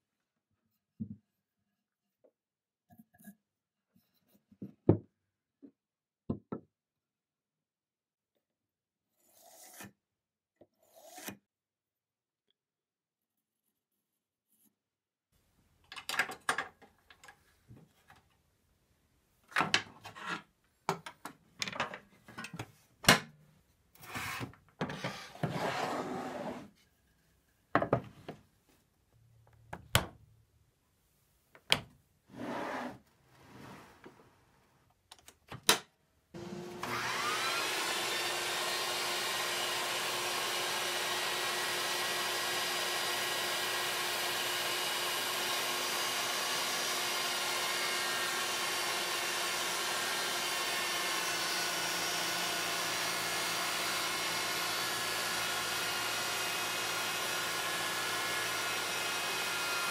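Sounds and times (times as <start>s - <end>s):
table saw motor whining: 25.0s - 26.7s, 36.4s - 59.9s.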